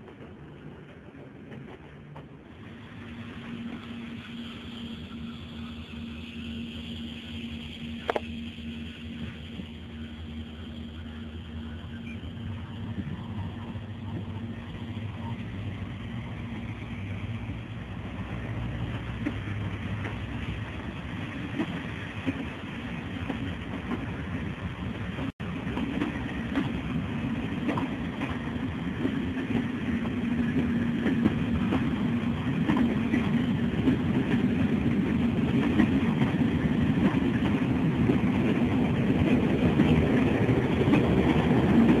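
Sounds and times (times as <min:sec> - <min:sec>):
train rumbling on rails: 0:00.0 - 0:42.0
train wheel clicks: 0:11.8 - 0:42.0.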